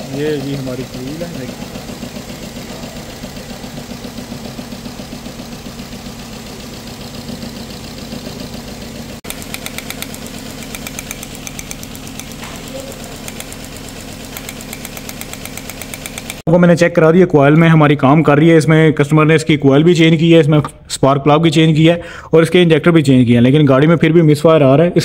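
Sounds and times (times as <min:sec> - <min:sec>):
car engine idling with misfire: 0:00.0 - 0:16.5
rapid sharp ticking: 0:09.2 - 0:16.5.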